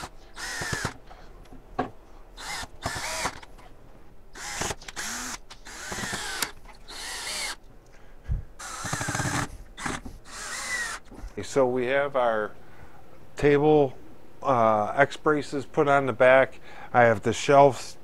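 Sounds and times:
cordless drill bursts: 0.0 - 1.0, 2.4 - 3.5, 4.3 - 7.6, 8.6 - 11.1.

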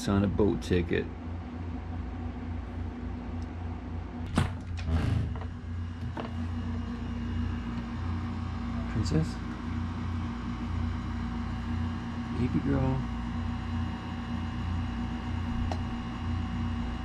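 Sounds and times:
steady low hum: 0.0 - 17.0
door opening rush: 4.2 - 6.4.

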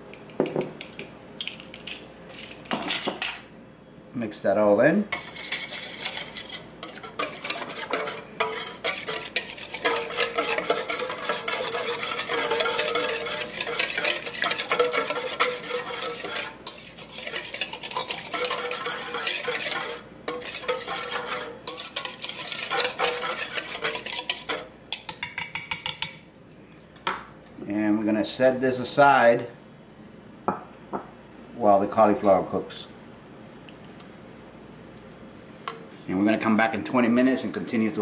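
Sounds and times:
whisk scraping metal bowl: 5.1 - 26.2.

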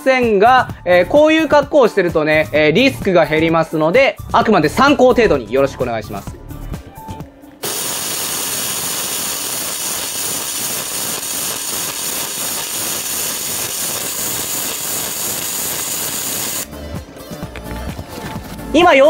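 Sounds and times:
welding arc crackle: 7.6 - 16.7.

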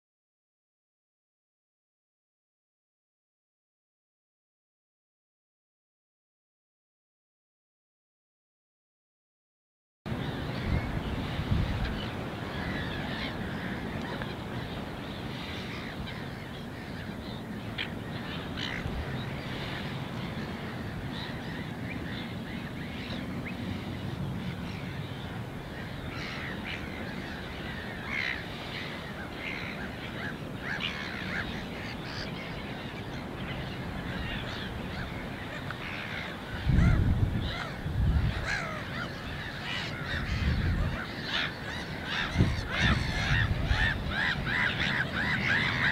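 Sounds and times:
wind rumbling on microphone: 10.1 - 45.9
geese calling: 10.2 - 45.9.

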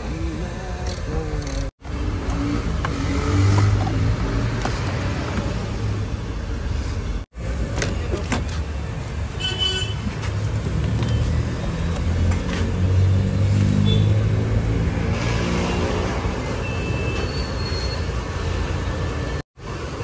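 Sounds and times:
vehicle engine humming: 0.0 - 9.4.

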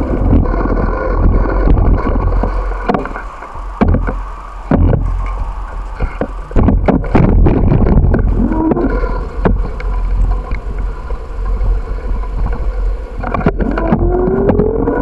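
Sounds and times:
low road rumble: 0.0 - 15.0
wind buffeting microphone: 0.0 - 15.0
bicycle rattling knocks: 2.1 - 8.4.

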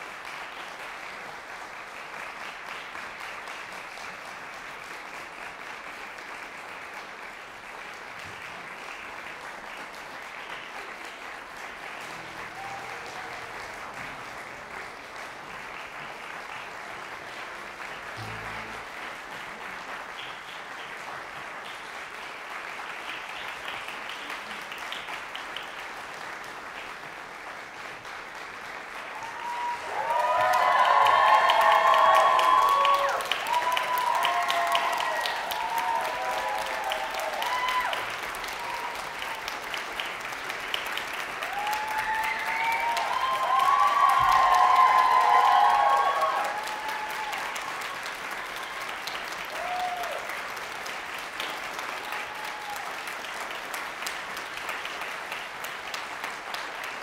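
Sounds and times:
audience applauding: 0.0 - 57.0
loud pitched sound: 18.2 - 19.2.

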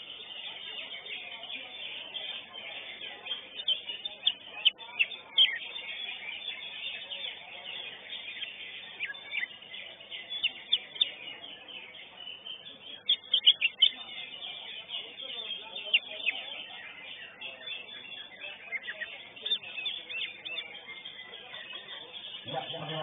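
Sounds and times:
steady background noise: 0.0 - 23.0.

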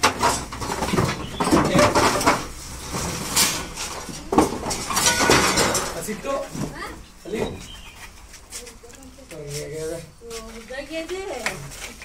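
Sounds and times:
wooden poles knocking and clattering: 0.0 - 9.0.

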